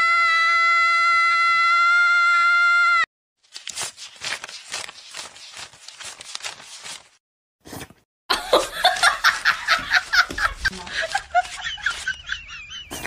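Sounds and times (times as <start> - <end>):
people laughing: 8.3 - 13.0.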